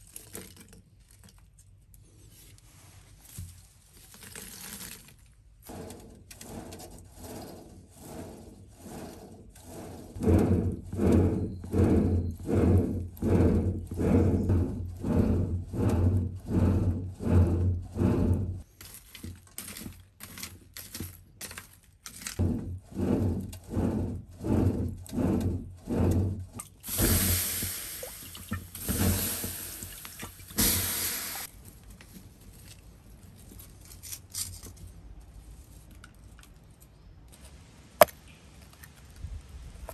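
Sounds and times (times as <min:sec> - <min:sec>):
hand-cranked blower whooshing: 0:05.6 - 0:18.7, 0:22.4 - 0:31.5
low hum: 0:08.8 - 0:18.6.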